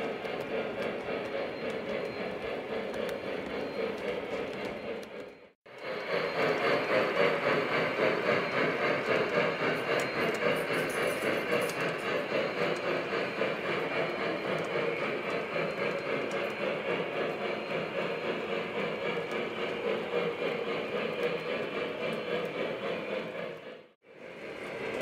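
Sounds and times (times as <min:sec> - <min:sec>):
model train hissing rumble: 0:05.8 - 0:25.0.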